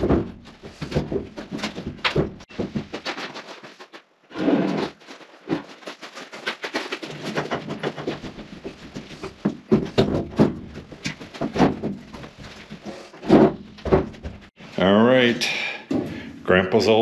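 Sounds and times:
heavy sink knocks and clunks: 0.0 - 2.9, 7.3 - 14.5.

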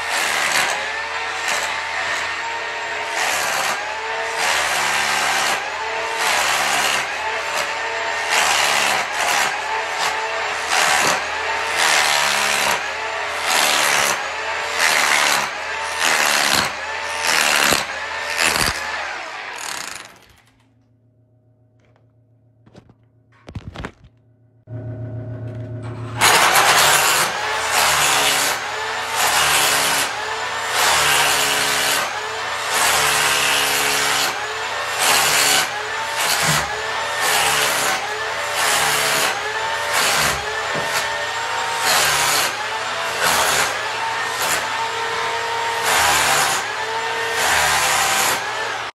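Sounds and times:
electric hammer chipping tile: 0.0 - 20.4, 26.1 - 48.9
clicks: 20.1 - 21.0
short hum: 20.7 - 26.8.

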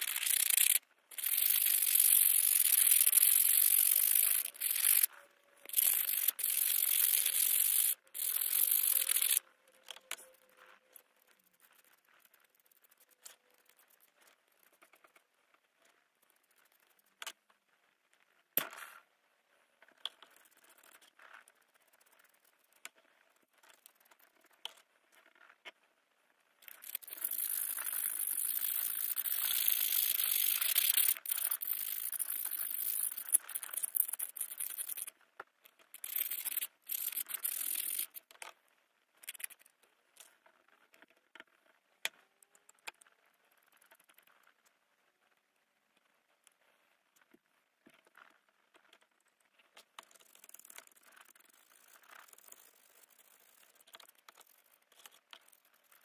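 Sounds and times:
toothbrush scrubbing metal in liquid: 0.0 - 9.4, 26.6 - 35.1, 36.0 - 38.2.

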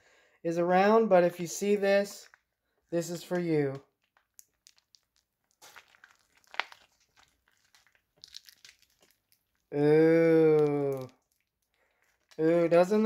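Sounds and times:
plastic bag crinkling: 2.0 - 9.8, 10.4 - 13.0
small clicks and crack: 3.2 - 9.7, 10.5 - 12.4.

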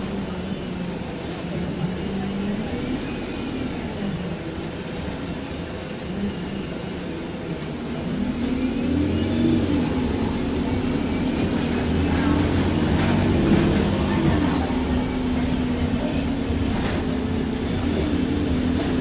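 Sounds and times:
bus diesel engine pulling away: 6.8 - 19.0.

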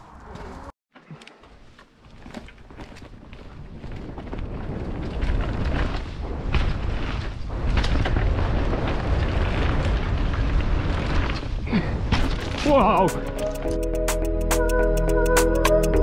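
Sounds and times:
tyres on dirt: 0.0 - 13.7
bike clattering over bumps: 1.8 - 13.0
wind buffeting microphone: 2.6 - 12.5.

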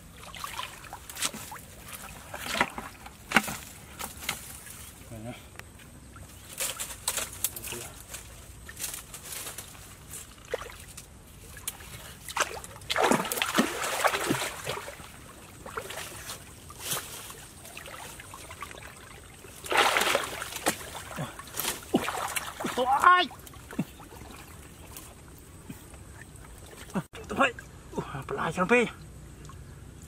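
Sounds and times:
river water splashing: 0.0 - 5.0, 5.8 - 30.0
small clicks and drips: 23.4 - 30.0.

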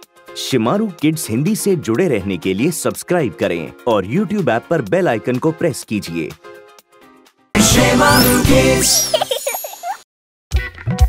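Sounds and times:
loud jingle music: 7.6 - 9.9.

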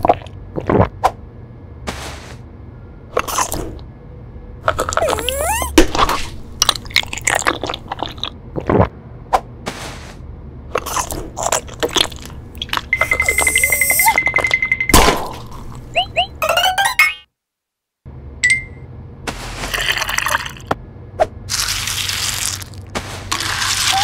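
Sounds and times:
squeaky gliding sounds: 4.9 - 5.8, 12.6 - 14.4, 15.9 - 17.0
crunchy bites and chewing: 5.9 - 8.9, 21.5 - 24.0
steady high tone: 12.9 - 15.0.

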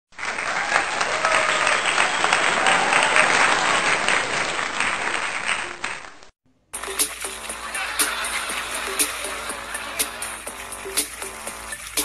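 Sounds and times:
crowd applauding: 0.1 - 12.0
voices calling out: 7.4 - 10.5.

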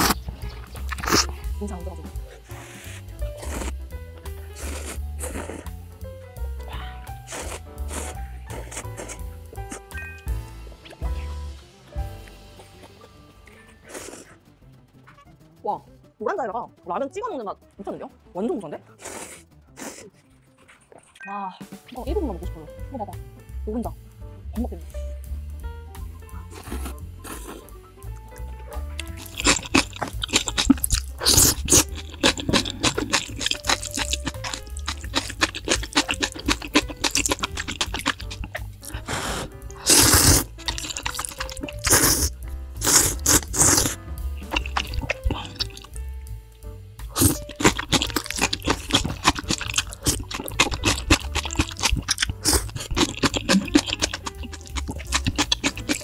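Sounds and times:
wet crunchy chewing: 0.0 - 1.6, 2.2 - 5.8, 6.7 - 9.9, 12.2 - 14.4, 19.0 - 21.2, 26.4 - 46.0, 47.0 - 56.0
background music with bass: 0.0 - 20.6, 21.5 - 56.0
lip smacks: 26.6 - 45.9, 47.1 - 56.0.

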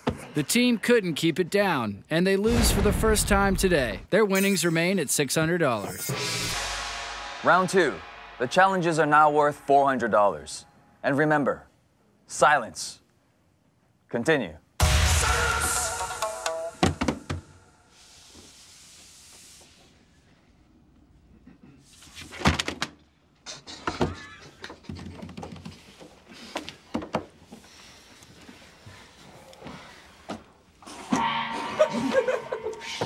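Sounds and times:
stifled laughter: 31.7 - 33.0.

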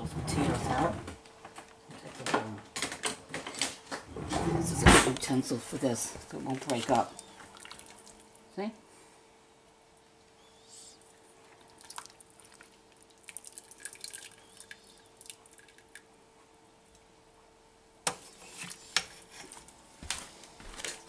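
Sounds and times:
broth dripping and splashing: 6.3 - 8.4, 11.4 - 16.0.

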